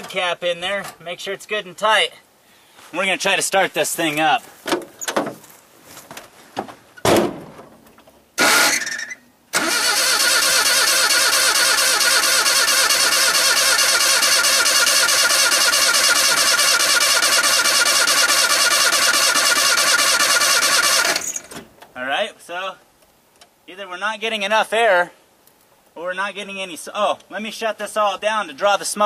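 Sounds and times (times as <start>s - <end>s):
thump: 4.7s - 5.4s, 6.6s - 7.8s
starter motor cranking engine: 8.4s - 21.6s.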